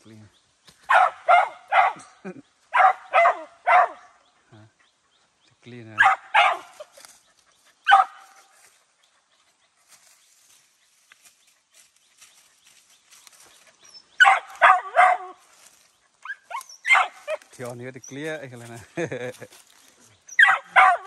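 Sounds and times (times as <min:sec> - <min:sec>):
dog barking: 0:00.9 - 0:04.2, 0:05.9 - 0:07.0, 0:07.8 - 0:08.5, 0:14.0 - 0:15.4, 0:16.2 - 0:17.5, 0:20.3 - 0:21.0.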